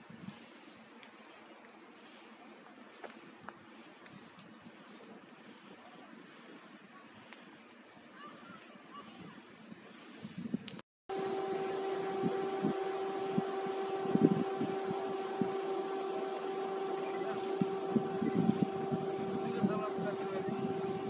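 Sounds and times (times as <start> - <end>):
cicadas singing: 0.0 - 21.0
low motor hum: 11.1 - 21.0.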